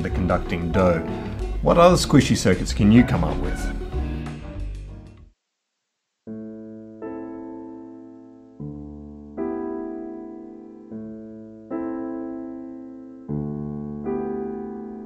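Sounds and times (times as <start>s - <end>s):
slow solo piano chords: 6.3s - 15.0s.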